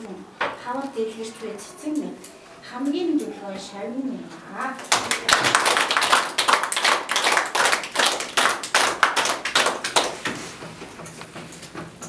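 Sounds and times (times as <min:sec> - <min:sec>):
group of people clapping: 0:04.9 - 0:10.5.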